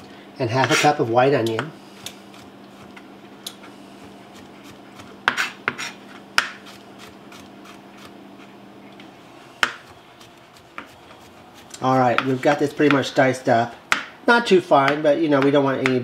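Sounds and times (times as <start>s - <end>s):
knife chopping on cutting board: 0.6s - 0.9s, 4.0s - 8.2s, 9.6s - 13.1s, 14.8s - 16.0s.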